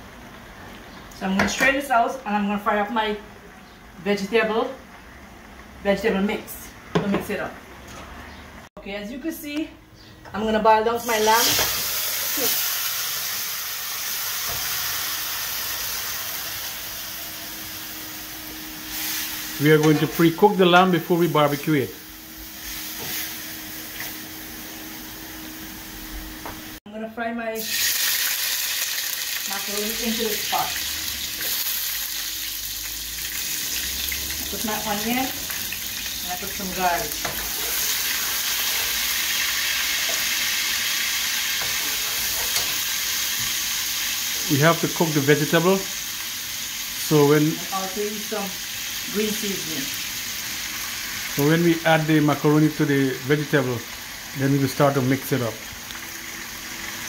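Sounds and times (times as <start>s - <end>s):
meat sizzling in a hot pot: 11.0s - 26.8s, 27.6s - 57.0s.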